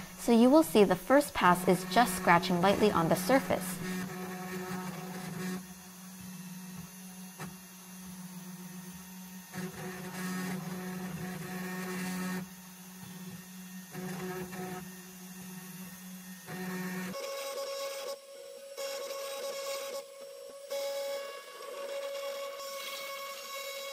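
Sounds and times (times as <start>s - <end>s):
router spindle humming: 0.0s - 23.9s
stepper motors moving: 0.2s - 4.2s.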